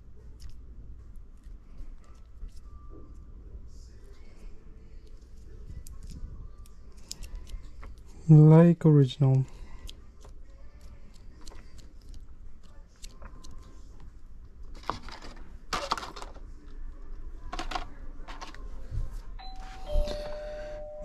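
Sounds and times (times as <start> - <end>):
faint steady tone: 19.4 - 21.0.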